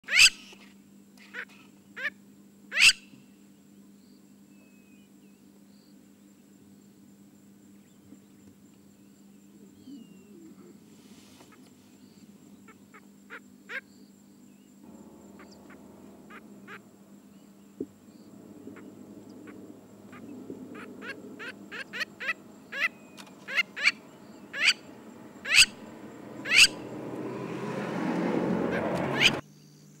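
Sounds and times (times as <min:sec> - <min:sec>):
rushing noise: 0:14.8 - 0:29.4
lapwings calling: 0:14.9 - 0:27.2, 0:28.6 - 0:29.4.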